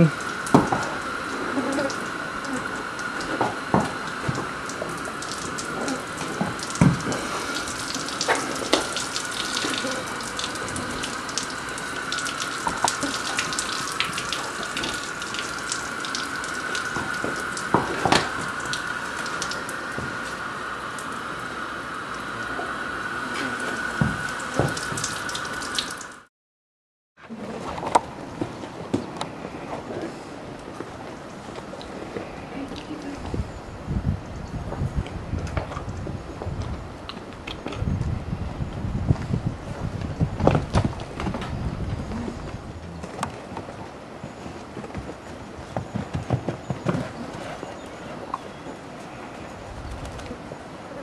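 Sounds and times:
water running from a hose: 0:00.0 - 0:26.3
water splashing: 0:00.0 - 0:26.3.

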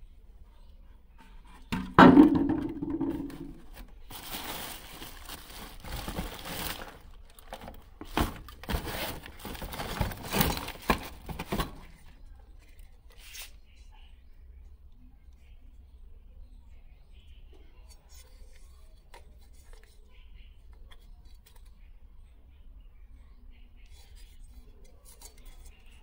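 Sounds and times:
plastic jar knocking: 0:01.7 - 0:03.8
plastic bags and cardboard rustling: 0:02.0 - 0:12.7.

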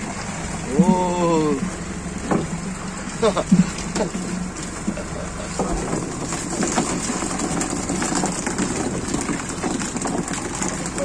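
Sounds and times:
boat engine running: 0:00.0 - 0:11.0
fish pattering on wet deck: 0:01.7 - 0:11.0
water splashing off net: 0:02.2 - 0:11.0.

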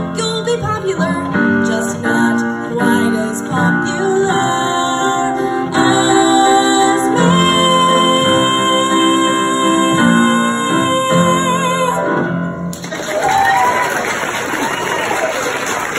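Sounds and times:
woman singing: 0:00.0 - 0:12.3.

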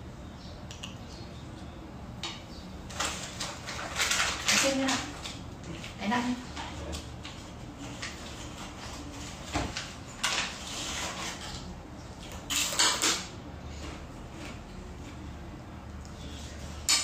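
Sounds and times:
rustling scrape: 0:10.3 - 0:11.7.

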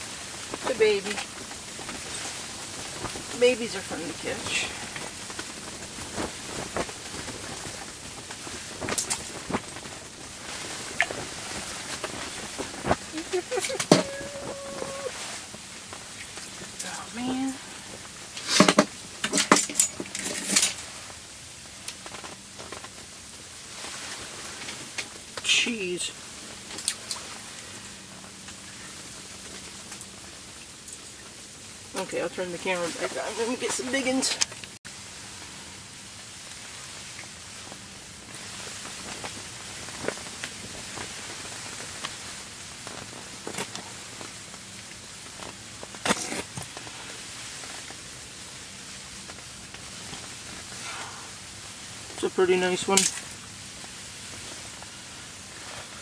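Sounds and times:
snowstorm hiss: 0:00.0 - 0:56.0
handling rustles and clinks: 0:18.4 - 0:20.9.

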